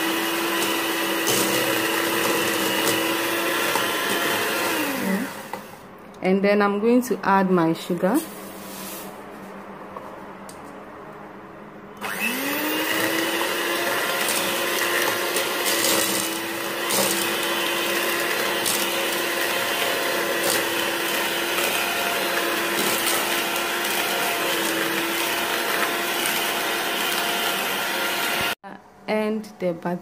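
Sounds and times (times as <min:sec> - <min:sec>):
electric hand mixer whining: 0:00.0 - 0:05.8, 0:12.0 - 0:28.6.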